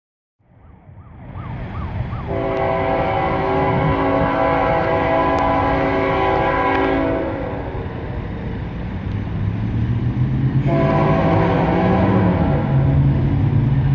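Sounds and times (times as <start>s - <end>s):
locomotive air horn chord: 2.3s - 7.8s, 10.6s - 13.2s.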